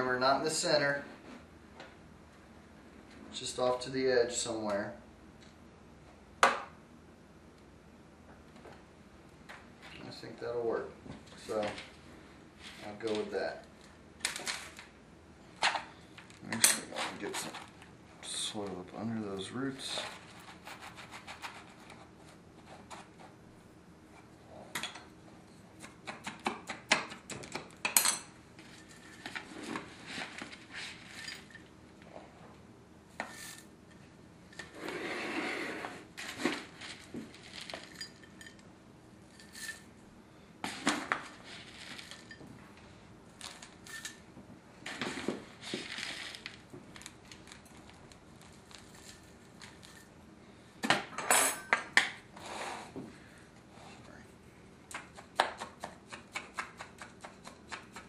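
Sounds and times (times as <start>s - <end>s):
soil grains clicking and rustling: 36.4s - 38.0s, 44.8s - 50.0s.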